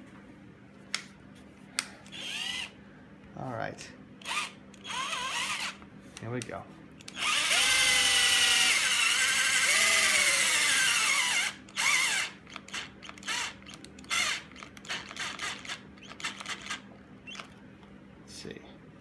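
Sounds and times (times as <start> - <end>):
cordless drill motor whining: 2.0 - 2.8, 4.2 - 5.8, 7.0 - 17.5.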